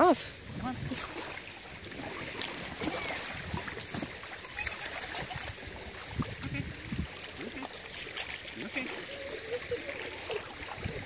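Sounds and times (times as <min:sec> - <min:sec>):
shallow water sloshing and splashing: 0:00.1 - 0:11.0.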